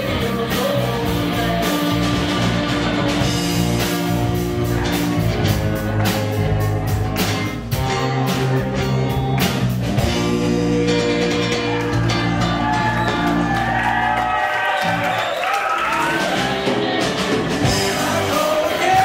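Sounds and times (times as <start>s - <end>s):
drum and cymbal hits: 0.0s - 10.9s, 16.1s - 19.0s
electric guitar chords: 0.0s - 15.2s, 15.9s - 19.0s.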